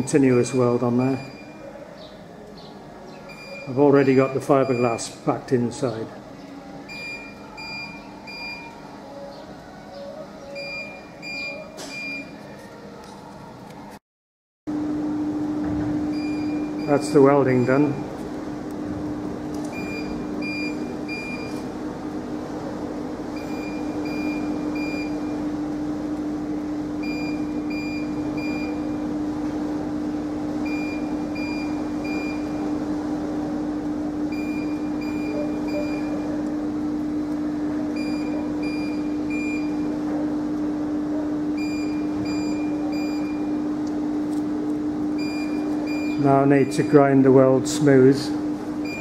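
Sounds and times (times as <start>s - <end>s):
electronic beeper high beeps: 34.4s - 36.3s.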